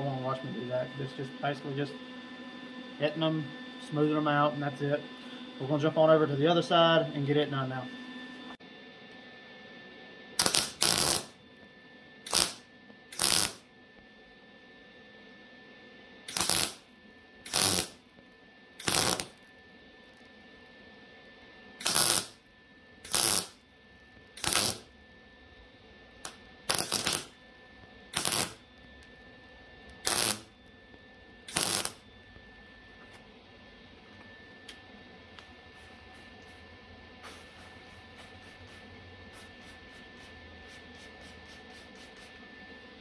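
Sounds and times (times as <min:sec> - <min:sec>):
tack welding bursts: 0:10.4 - 0:11.4, 0:12.2 - 0:13.6, 0:16.3 - 0:18.0, 0:18.8 - 0:19.4, 0:21.8 - 0:22.4, 0:23.0 - 0:23.6, 0:24.4 - 0:24.9, 0:26.2 - 0:27.4, 0:28.1 - 0:28.6, 0:30.0 - 0:30.5, 0:31.5 - 0:32.0.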